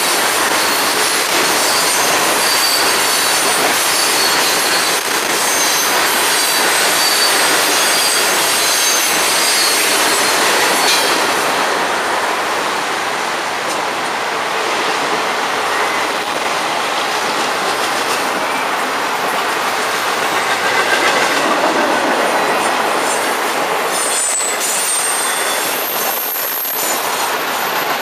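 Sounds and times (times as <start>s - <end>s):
freight train wheels on rails: 0.0s - 28.0s
high wheel squeals: 0.5s - 11.4s, 20.4s - 28.0s.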